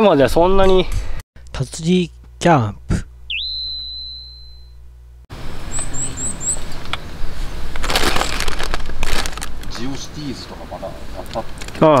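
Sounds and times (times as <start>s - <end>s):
high chirps: 3.3s - 4.9s, 5.6s - 6.8s.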